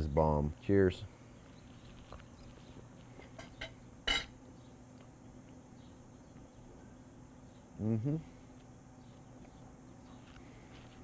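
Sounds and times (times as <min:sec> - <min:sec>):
faint background hum: 0:00.0 - 0:11.0.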